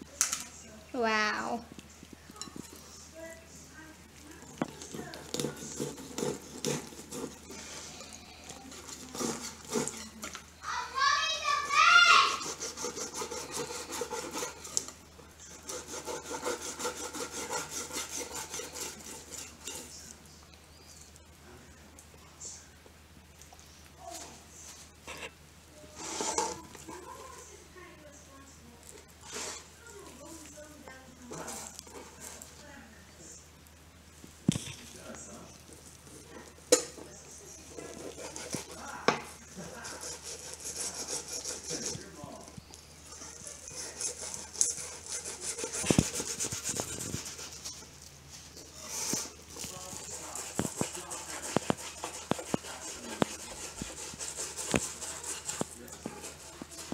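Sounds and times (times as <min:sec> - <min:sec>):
knife sawing through fish flesh: 0:05.3 - 0:07.8, 0:08.7 - 0:10.1, 0:12.4 - 0:14.9, 0:15.5 - 0:19.8, 0:37.8 - 0:39.0, 0:39.6 - 0:42.1, 0:43.2 - 0:47.8, 0:48.8 - 0:56.9.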